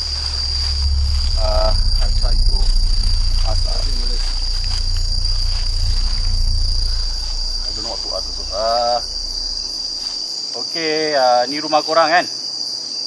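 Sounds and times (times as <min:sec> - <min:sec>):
low rumble: 0:00.0 - 0:10.2
night insects chirping: 0:00.0 - 0:13.0.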